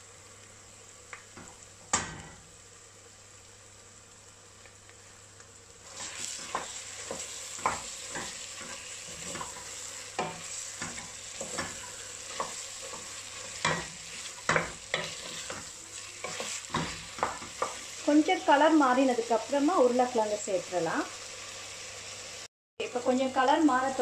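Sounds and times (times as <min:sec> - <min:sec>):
meat sizzling in a pot: 0:00.0 - 0:24.0
wooden spoon scraping a pot: 0:05.9 - 0:17.9.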